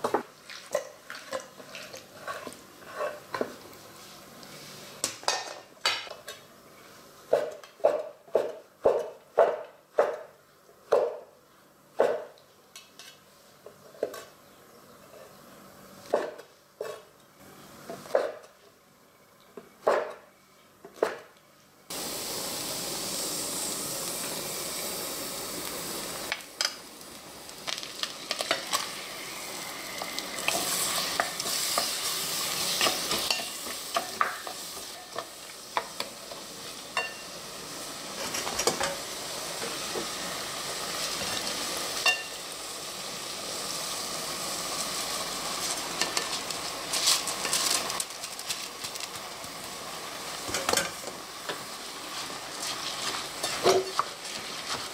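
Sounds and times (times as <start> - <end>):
food sizzling in a pot: 0.0 - 7.7, 21.9 - 54.9
wooden spoon stirring and scraping: 0.5 - 5.1, 52.1 - 54.9.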